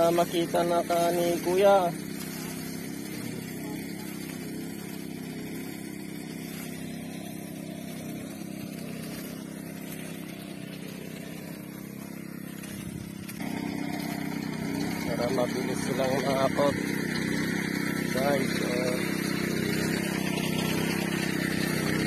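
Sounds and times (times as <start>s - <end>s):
small engine humming steadily: 0.0s - 22.0s.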